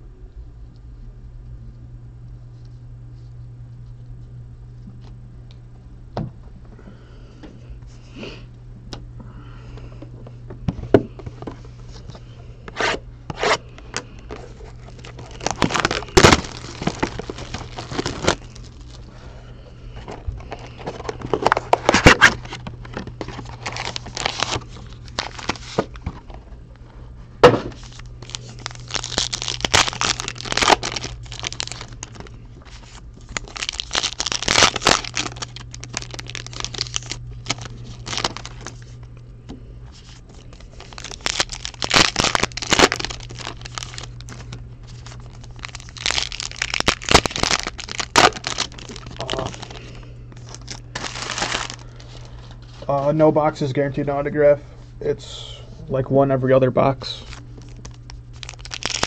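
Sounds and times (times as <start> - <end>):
steady low hum: 0.0 - 59.0
wrappers crinkling and tearing: 12.7 - 19.4, 20.0 - 26.5, 27.7 - 39.1, 39.9 - 53.0, 57.0 - 59.0.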